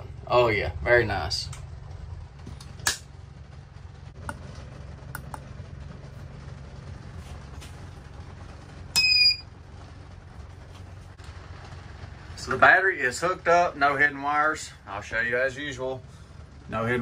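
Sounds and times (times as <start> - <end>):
steady low hum: 0.0 - 17.0
power inverter beep: 9.0 - 9.5.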